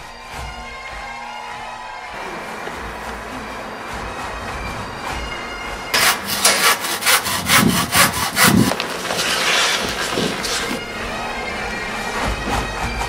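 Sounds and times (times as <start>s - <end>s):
background music: 0.0s - 13.0s
handsaw rasping through wood: 5.9s - 10.8s.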